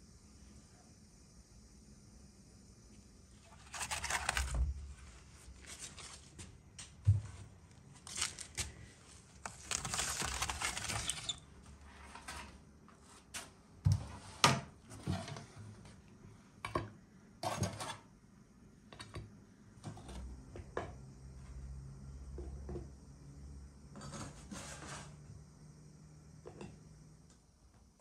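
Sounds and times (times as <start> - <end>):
metal spatula scraping baking tray: 24.0 - 25.2.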